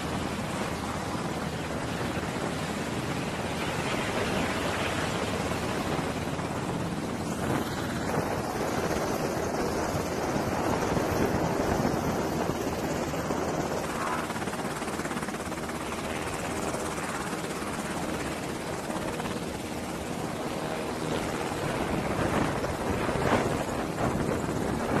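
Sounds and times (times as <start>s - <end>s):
helicopter rotor noise: 0.0s - 25.0s.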